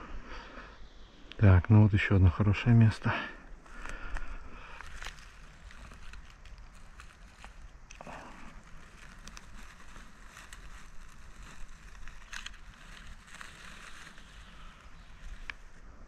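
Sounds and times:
twigs crackling underfoot: 2.6 - 16.0
footsteps through dry pine needles: 3.5 - 16.0.

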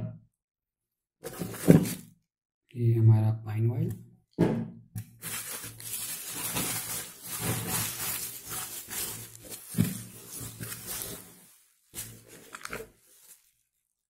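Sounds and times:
plastic bottles rummaged: 1.2 - 2.1, 5.2 - 13.6
bubble wrap rustling: 1.3 - 2.0, 5.2 - 14.0
loud knock: 4.4 - 4.8.

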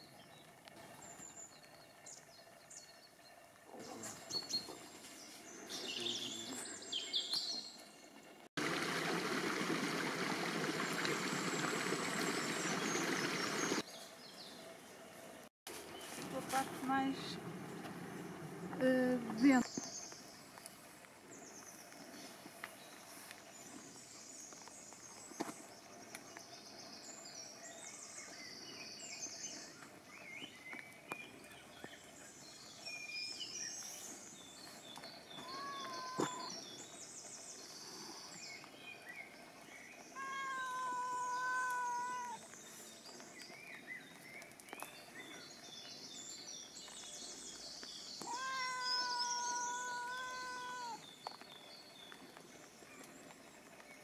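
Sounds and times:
birds chirping: 0.0 - 15.0, 15.8 - 54.0
cat meowing: 35.4 - 36.5, 40.2 - 42.4, 48.2 - 51.0.

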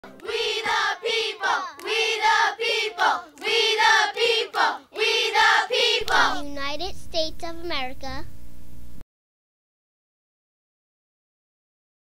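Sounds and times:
choir of high voices singing: 0.1 - 6.3.

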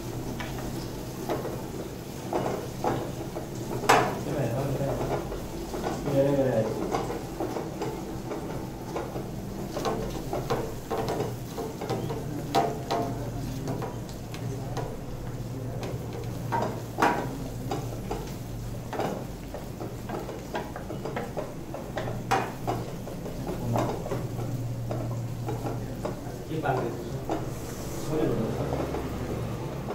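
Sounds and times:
masala sizzling in oil: 0.0 - 29.9
ladle stirring and scraping pan: 0.1 - 29.9
ladle knocking against pan: 2.3 - 4.2, 15.8 - 27.5.

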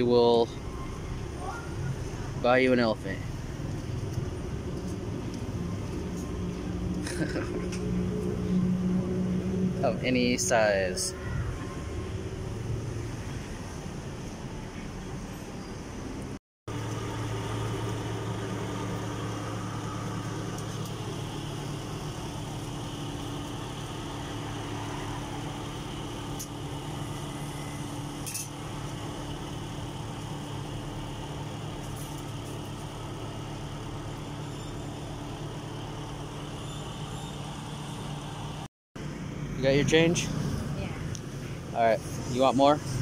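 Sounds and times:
street background noise: 0.0 - 43.0
engine idling: 16.7 - 39.2.

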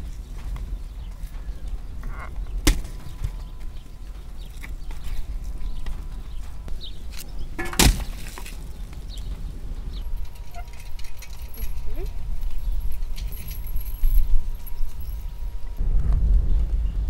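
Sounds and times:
logs dropping with wooden knocks: 2.0 - 3.5, 7.1 - 9.0.

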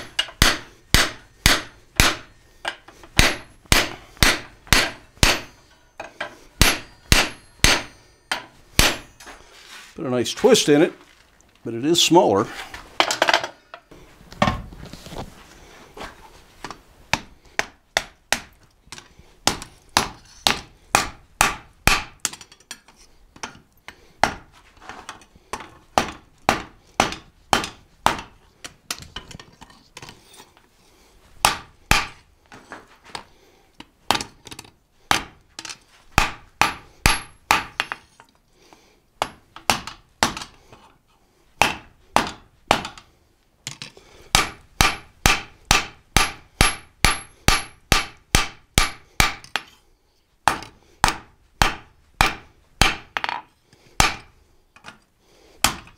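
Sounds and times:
hammer striking steel on anvil: 0.0 - 9.3, 36.2 - 38.0, 44.4 - 49.7.

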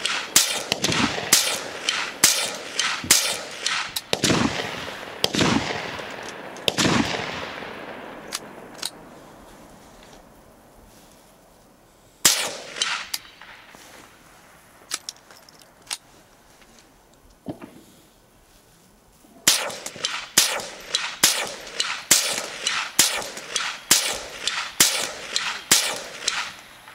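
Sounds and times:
rifle shots: 0.0 - 9.0, 12.2 - 14.2, 19.4 - 26.9.

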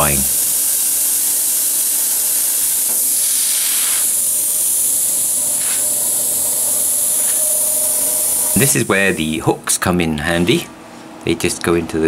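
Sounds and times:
plasma cutter hissing: 0.0 - 9.6.

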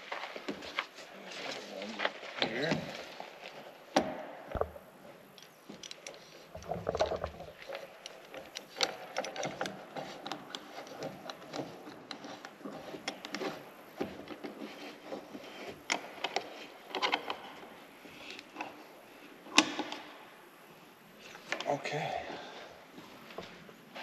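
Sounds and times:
metal clamps clicking and scraping: 5.4 - 13.6.

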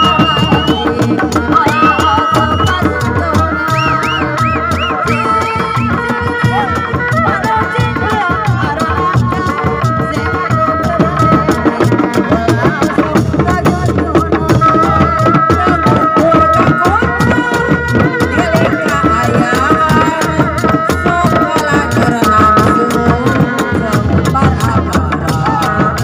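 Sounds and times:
hand drums fast rhythm: 0.0 - 26.0.

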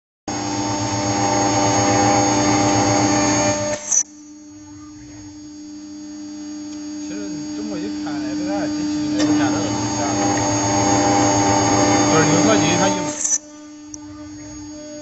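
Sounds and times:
milling cutter grinding metal: 0.3 - 4.0, 6.2 - 15.0
spindle whine: 0.3 - 15.0
quiet steady hum: 4.0 - 15.0.

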